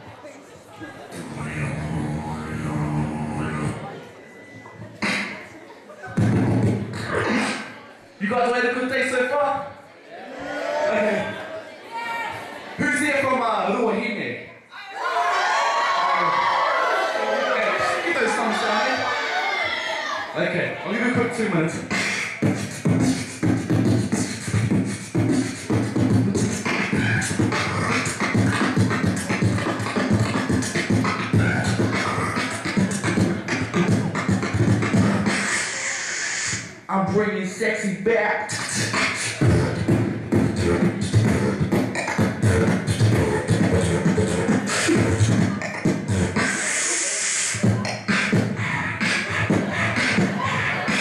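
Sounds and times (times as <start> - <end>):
person beatboxing: 1.1 - 3.9, 4.8 - 7.8, 21.2 - 36.9, 38.3 - 51.0.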